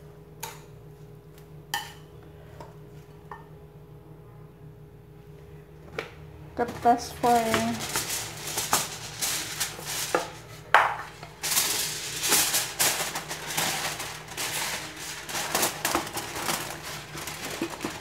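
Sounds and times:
aluminium foil crinkling: 6.8 - 18.0.

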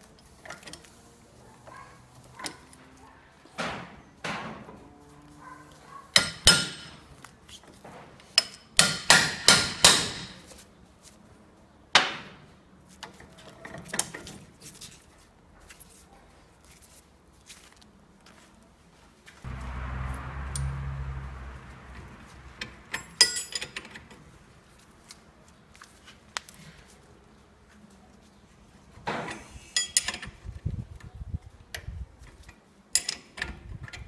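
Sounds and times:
hammer striking steel: 6.2 - 7.0, 8.8 - 10.4, 19.5 - 23.9.

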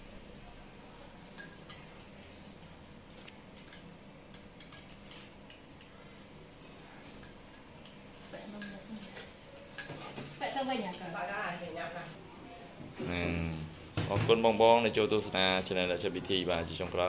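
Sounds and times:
spoon clinking ceramic bowl: 1.3 - 2.3, 3.6 - 5.0, 8.6 - 8.9.

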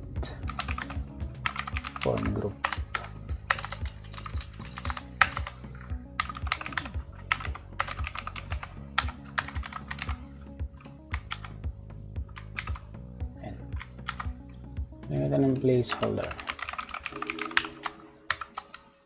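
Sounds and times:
quiet background music: 0.0 - 19.0
typing on computer keyboard: 0.5 - 5.6, 6.2 - 10.2, 12.3 - 12.8, 15.9 - 18.9.

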